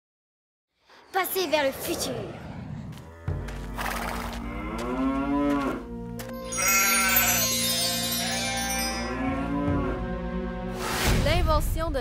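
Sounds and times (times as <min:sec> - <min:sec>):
cows mooing: 0:02.9 - 0:10.2
low musical drone: 0:03.1 - 0:10.8.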